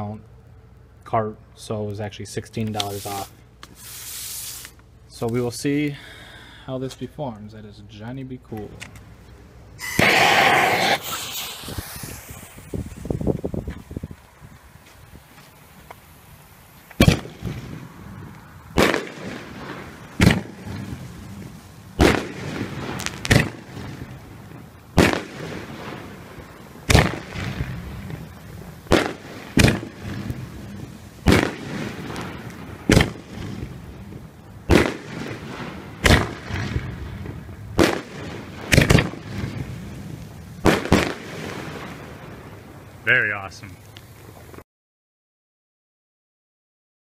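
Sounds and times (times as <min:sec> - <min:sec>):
fireworks cake shell reports: 0:01.0 - 0:08.9, 0:09.8 - 0:13.2, 0:43.0 - 0:43.9.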